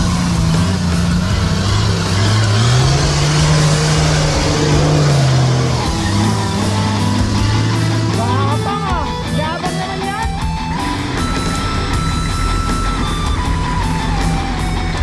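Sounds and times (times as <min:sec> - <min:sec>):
engine revving hard: 0:00.0 - 0:09.4.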